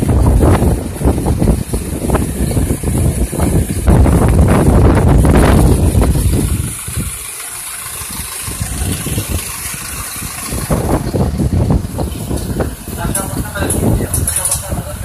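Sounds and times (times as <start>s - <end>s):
bus engine running: 0.0s - 15.0s.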